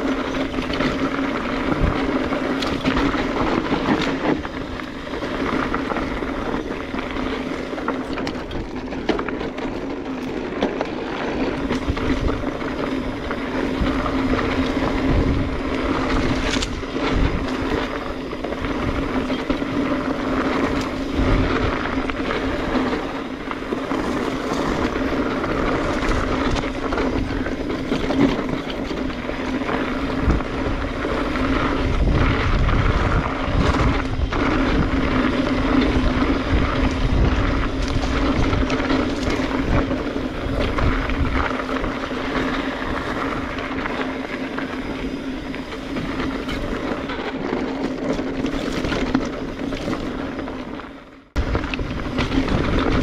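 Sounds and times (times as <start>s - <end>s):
bike rattling over bumps: 0.0s - 53.0s
bike tyres rolling on dirt: 0.0s - 53.0s
constant hum: 0.0s - 53.0s.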